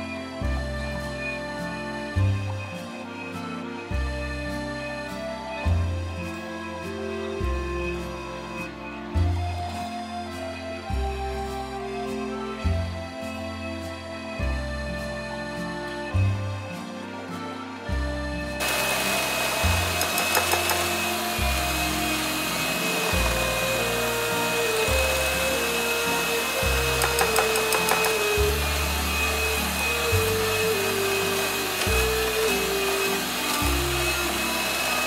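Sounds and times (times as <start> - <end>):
kitchen appliance motor whining: 18.4 - 35.0.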